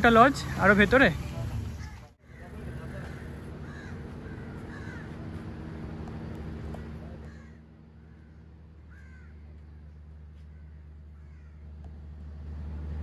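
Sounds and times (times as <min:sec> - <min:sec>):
low mechanical hum: 0:00.0 - 0:13.0
crow cawing: 0:01.8 - 0:05.8, 0:06.7 - 0:11.6.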